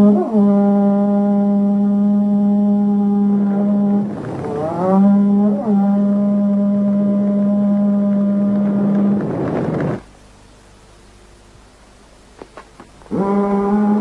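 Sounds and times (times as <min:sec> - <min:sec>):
conch shell trumpet blowing: 0:00.0 - 0:09.3.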